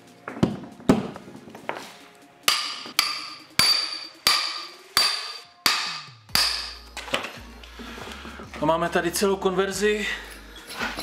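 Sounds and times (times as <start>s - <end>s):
hammer striking metal: 2.5s - 6.9s.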